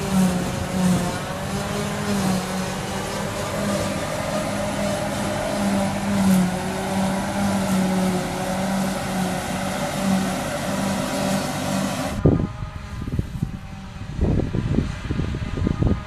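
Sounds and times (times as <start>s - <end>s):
forage harvester running: 0.0s - 15.0s
wind buffeting microphone: 12.1s - 16.0s.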